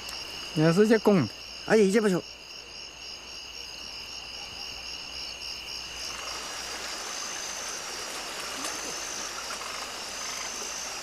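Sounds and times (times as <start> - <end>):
high insect trill: 0.0 - 11.0
faint frog croaks: 3.9 - 11.0
stream running over rocks: 5.7 - 11.0.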